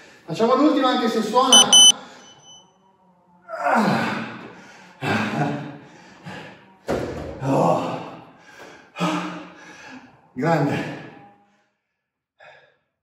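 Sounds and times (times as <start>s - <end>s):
man breathing hard: 8.3s - 10.2s, 12.4s - 12.9s.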